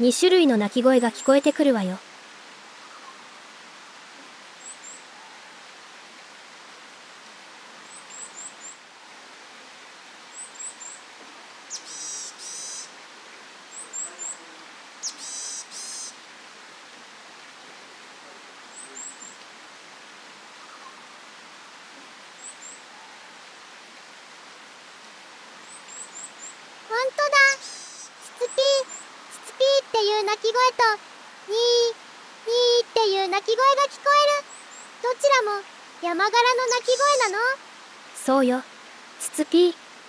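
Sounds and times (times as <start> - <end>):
harsh nasal bird calls: 11.7 - 12.9, 13.8 - 16.2, 27.2 - 29.1, 36.6 - 37.4.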